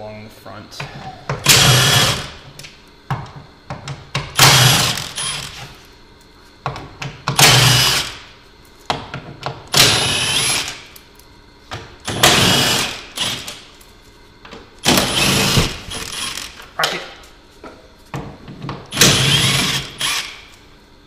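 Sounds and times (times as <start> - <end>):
cordless power driver bursts: 1.4 - 2.4, 4.4 - 5.6, 7.4 - 8.2, 9.7 - 10.9, 12.1 - 13.6, 14.8 - 16.6, 18.9 - 20.5.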